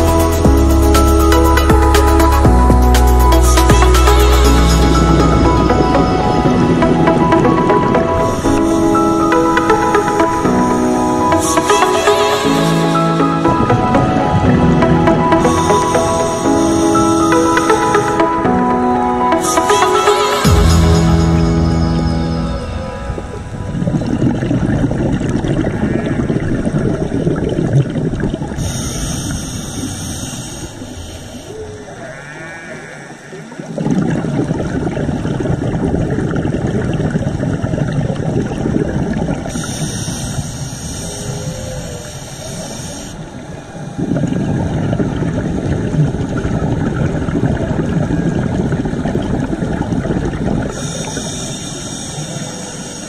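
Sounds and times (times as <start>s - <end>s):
crackling underwater reef noise: 23.7s - 53.0s
high hiss: 28.6s - 33.7s, 39.5s - 43.4s, 50.8s - 53.0s.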